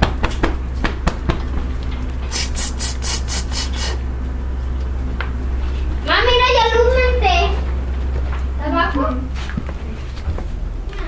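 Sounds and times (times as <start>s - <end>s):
steady low hum: 0.0s - 11.0s
rhythmic scraping strokes: 2.2s - 10.2s.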